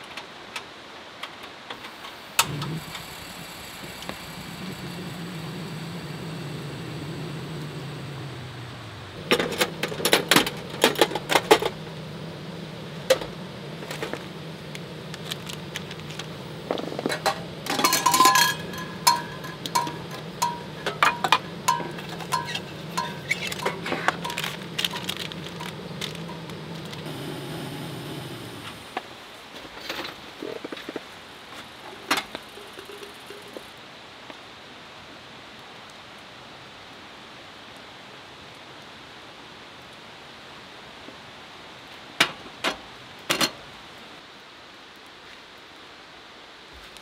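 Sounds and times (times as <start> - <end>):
gas burner running: 1.8 - 29.4
rustling burst: 1.9 - 29.3
metal clinks and taps: 17.1 - 26.6.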